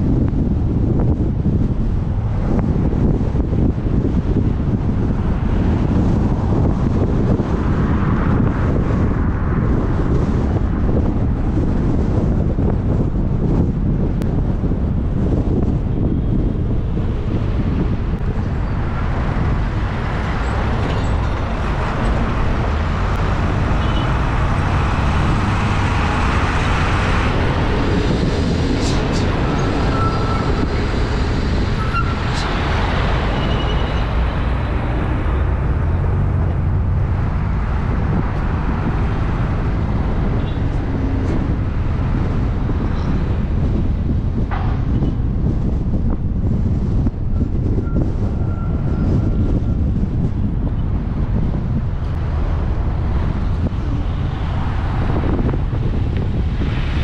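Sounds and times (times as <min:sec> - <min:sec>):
road traffic noise: 0:00.0 - 0:57.0
wind rumbling on microphone: 0:00.0 - 0:57.0
bus driving past: 0:15.3 - 0:45.0.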